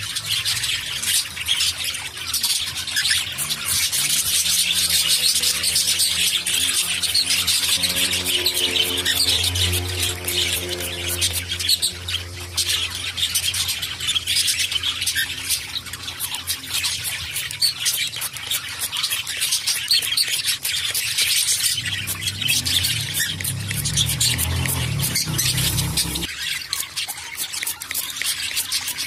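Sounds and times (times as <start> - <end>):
cockatiels chirping and squawking: 0.0 - 29.0
water spray hissing and pattering: 16.5 - 26.3.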